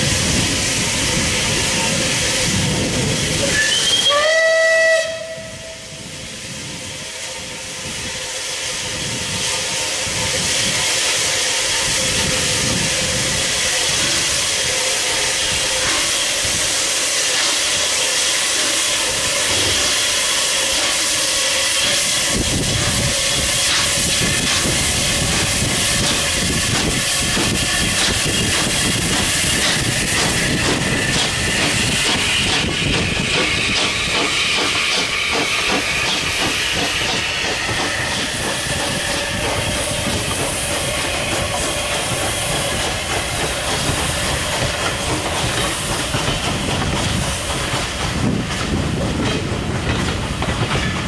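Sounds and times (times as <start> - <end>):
deep locomotive rumble: 0.0 - 51.0
loud hiss of steam: 0.0 - 51.0
steam whistle blast: 3.5 - 6.0.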